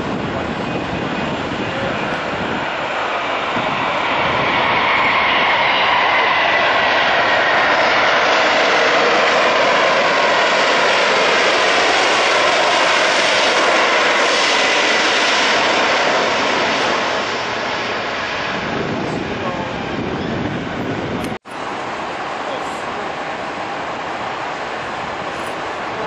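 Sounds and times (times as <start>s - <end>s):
jet engines rushing: 0.0s - 26.0s
faint high engine whine: 15.2s - 26.0s.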